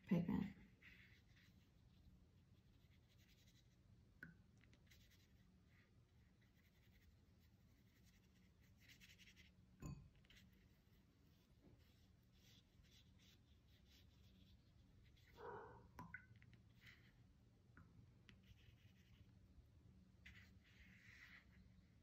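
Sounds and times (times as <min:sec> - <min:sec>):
brush strokes on paper: 0:00.5 - 0:03.8, 0:04.7 - 0:09.6, 0:10.2 - 0:15.5, 0:20.2 - 0:22.0.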